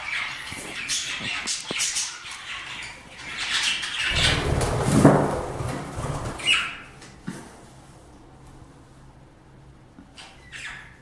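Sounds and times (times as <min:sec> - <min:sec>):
loud rustling: 0:04.1 - 0:07.0
budgerigars chirping: 0:10.4 - 0:11.0.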